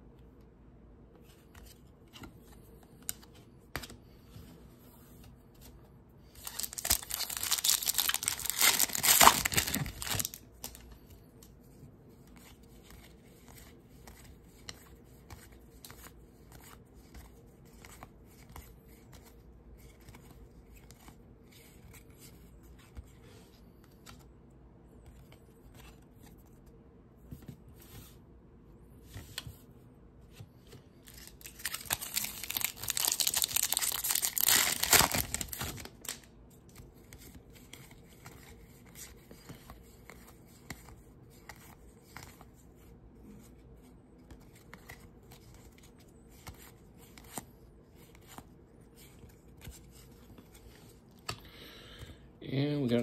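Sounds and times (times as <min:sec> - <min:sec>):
wrapper tearing and crinkling: 0:06.4 - 0:10.8, 0:31.1 - 0:36.2.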